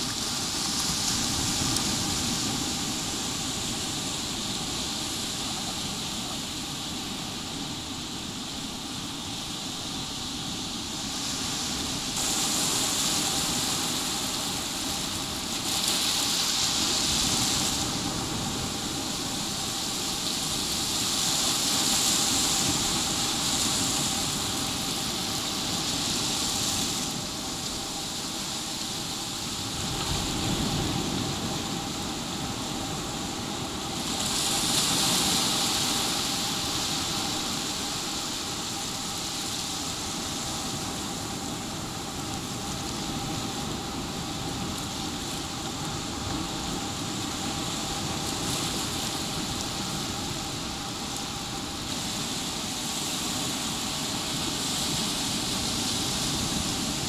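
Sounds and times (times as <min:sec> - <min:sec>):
waves lapping on sandy beach: 0:00.0 - 0:57.0.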